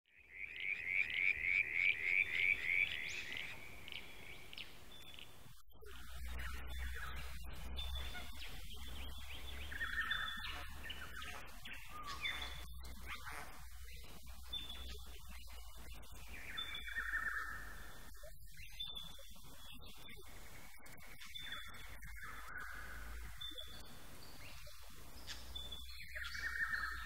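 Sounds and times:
birds chirping: 0:00.1 - 0:27.0
frog chirping: 0:00.2 - 0:13.6.

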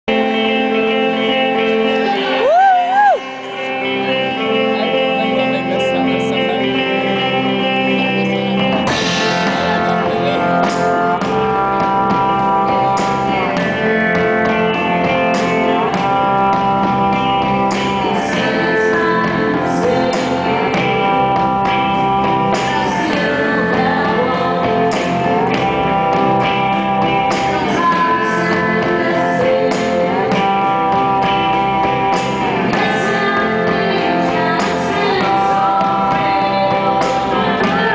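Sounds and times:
electric guitar: 0:00.0 - 0:37.9
woman singing: 0:18.0 - 0:21.2, 0:22.6 - 0:25.8, 0:27.3 - 0:30.9, 0:32.7 - 0:37.9.

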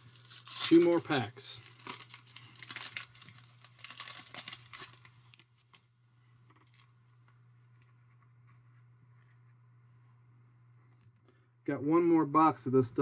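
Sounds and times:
paper wrapper tearing and crinkling: 0:00.0 - 0:05.8, 0:06.6 - 0:07.0
faint low hum: 0:00.0 - 0:13.0.

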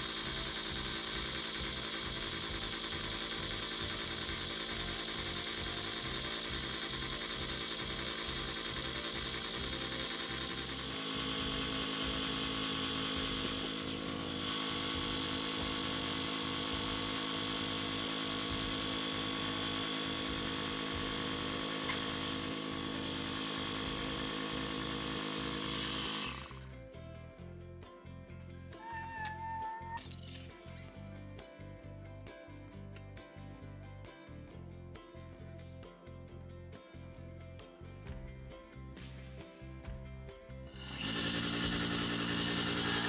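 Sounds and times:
small motor running: 0:00.0 - 0:26.8, 0:28.8 - 0:30.6, 0:40.7 - 0:43.0.

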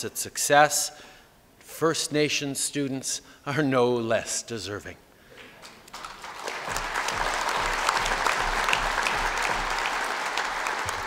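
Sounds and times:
crowd applauding: 0:05.6 - 0:11.0.

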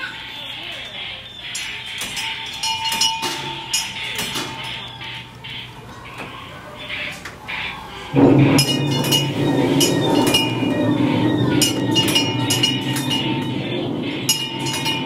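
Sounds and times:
metallic clinks: 0:01.5 - 0:04.9
steady low rumble: 0:08.1 - 0:15.0.

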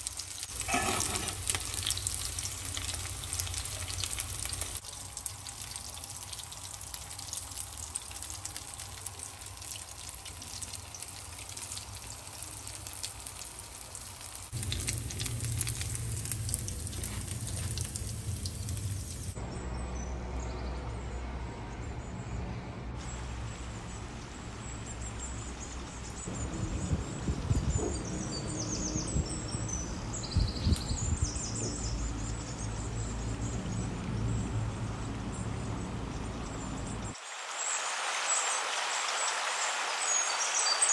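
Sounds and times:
fish sizzling in hot oil: 0:00.0 - 0:19.4.

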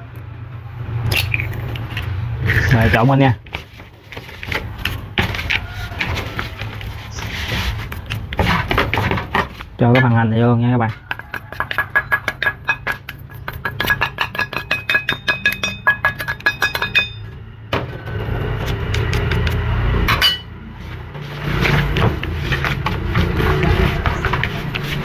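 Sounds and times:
chopsticks stirring wet mixture: 0:01.9 - 0:09.7, 0:10.8 - 0:15.1, 0:20.8 - 0:25.0
spoon tapping metal bowl: 0:11.1 - 0:17.2
sharp clink: 0:14.4 - 0:17.2.

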